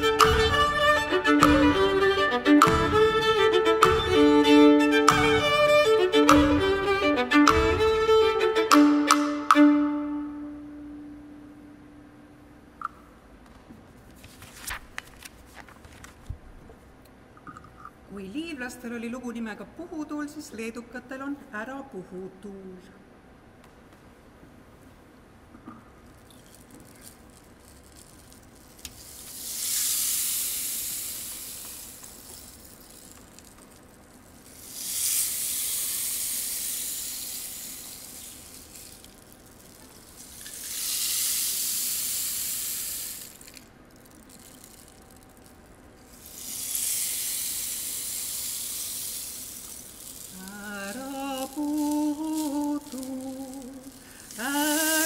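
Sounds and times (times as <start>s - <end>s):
rainstick pellets trickling: 26.2s - 55.0s
woman singing slow melody: 50.3s - 55.0s.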